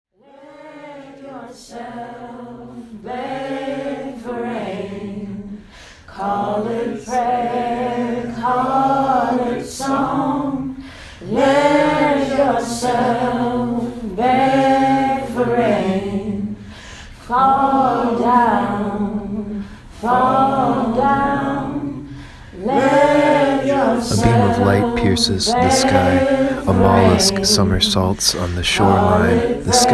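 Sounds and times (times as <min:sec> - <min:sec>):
a cappella voices singing: 0:00.2 - 0:29.9.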